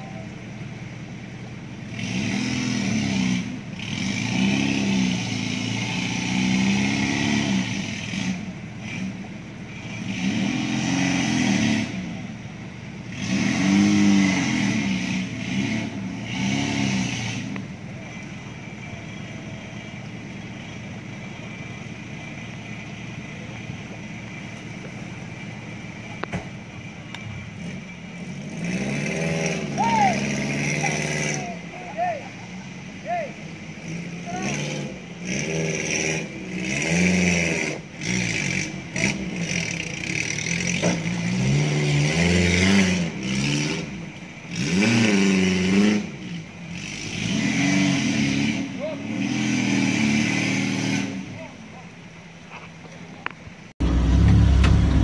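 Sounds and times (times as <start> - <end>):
engine revving hard: 1.9 - 9.2, 9.8 - 12.1, 13.1 - 17.6, 27.6 - 31.6, 33.8 - 51.4
engine running steadily: 11.8 - 28.5, 51.1 - 55.0.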